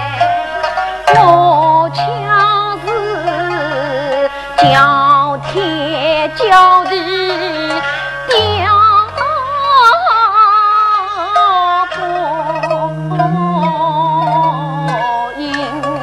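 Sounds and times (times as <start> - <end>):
opera singing with vibrato: 0.0 - 16.0
held low accompaniment notes: 12.4 - 15.1.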